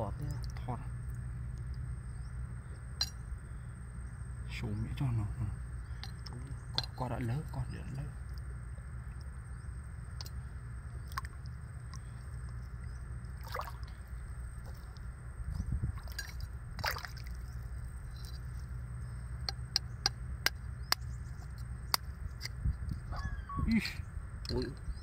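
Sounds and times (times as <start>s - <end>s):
steady low rumble: 0.0s - 25.0s
shallow water sloshing: 5.8s - 19.4s.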